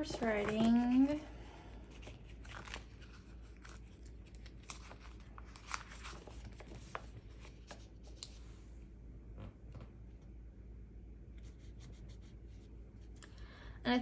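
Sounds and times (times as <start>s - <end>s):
paper rustling: 0.0s - 1.2s, 1.9s - 8.5s.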